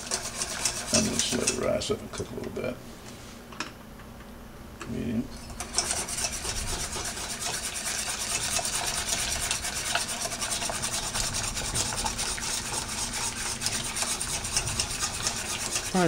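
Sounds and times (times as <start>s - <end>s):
whisk scraping a saucepan: 0.0s - 2.0s, 5.3s - 16.0s.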